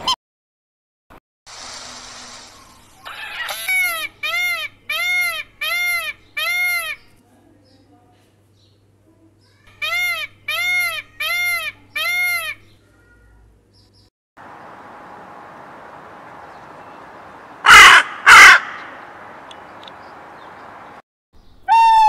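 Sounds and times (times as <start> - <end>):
outdoor background hiss: 1.5 - 21.7
peacock calls: 1.8 - 7.1, 9.7 - 12.8, 16.5 - 20.5, 21.6 - 22.0
crow cawing: 17.6 - 19.1.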